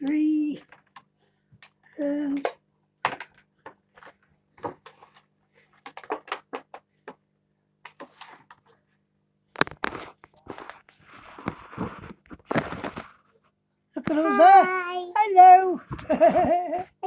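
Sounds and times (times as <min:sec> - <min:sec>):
knocks and rustling: 0:09.6 - 0:13.2.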